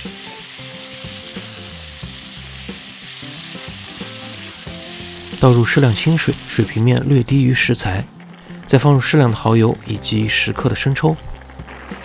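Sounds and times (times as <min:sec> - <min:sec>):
food sizzling in a wok: 0:00.0 - 0:06.8
wooden spatula stir-frying: 0:00.0 - 0:07.0.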